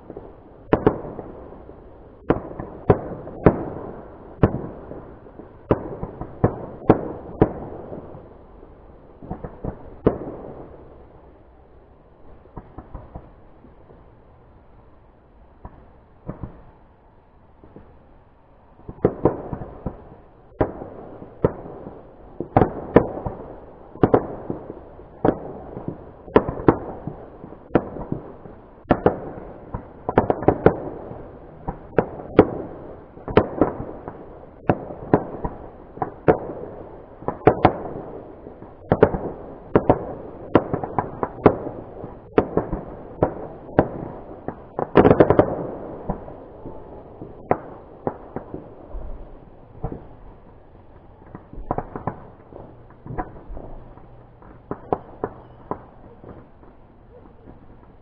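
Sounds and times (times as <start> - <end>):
fireworks bangs: 0.0 - 1.6, 18.8 - 58.0
fireworks crackling: 0.0 - 15.0, 15.6 - 58.0.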